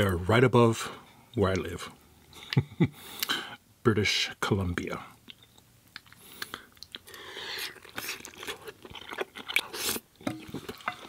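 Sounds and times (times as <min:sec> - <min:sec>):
man chewing and lip smacking: 0:05.2 - 0:11.0.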